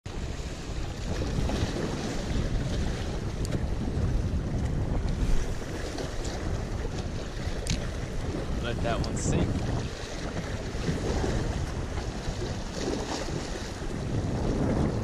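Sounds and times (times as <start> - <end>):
waves splashing against rocks: 0.1 - 15.0
wind buffeting microphone: 0.1 - 15.0.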